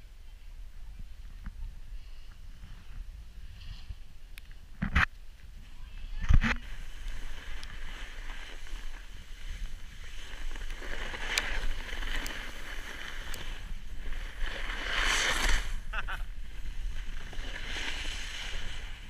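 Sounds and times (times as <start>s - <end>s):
wind rumbling on microphone: 0.0s - 19.0s
snowboard scraping over snow: 5.6s - 19.0s.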